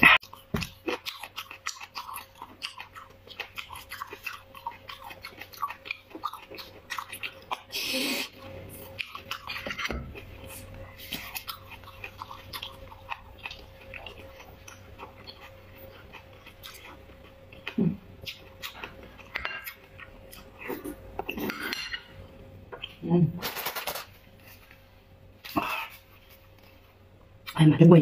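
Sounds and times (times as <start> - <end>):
wet chewing: 0.1 - 21.7.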